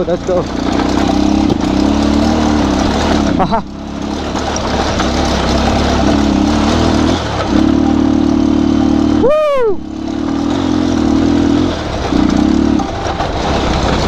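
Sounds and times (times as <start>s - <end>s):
motorcycle engine revving: 0.0s - 14.0s
person whooping: 9.1s - 9.9s.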